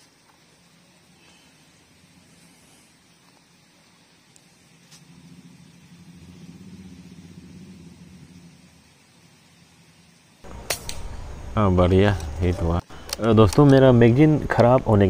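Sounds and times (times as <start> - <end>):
low engine hum: 10.4 - 15.0
air rifle shot: 10.5 - 11.4.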